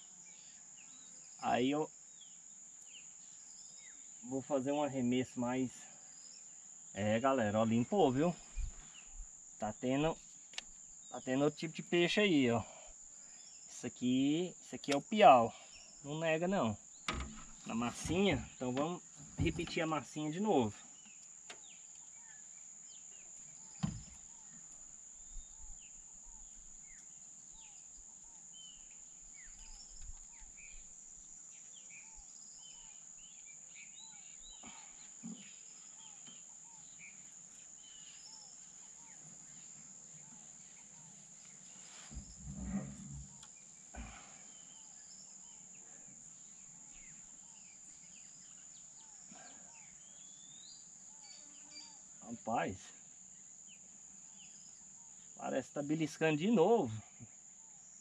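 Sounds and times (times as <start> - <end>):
high insect drone: 0.0 - 58.0
soft knocks and bumps: 17.1 - 19.9, 23.8 - 24.2, 42.0 - 43.4.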